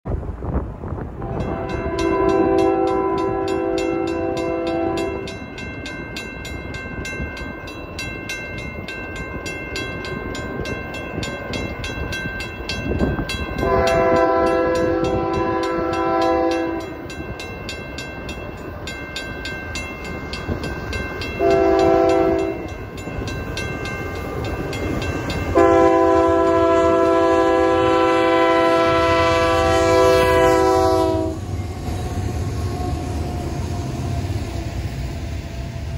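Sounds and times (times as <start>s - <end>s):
locomotive air horn blasts: 1.2s - 5.3s, 13.6s - 17.0s, 21.4s - 22.7s, 25.5s - 31.6s
railroad crossing bell ringing: 1.2s - 35.9s
rumble of engines and wheels: 31.3s - 35.9s.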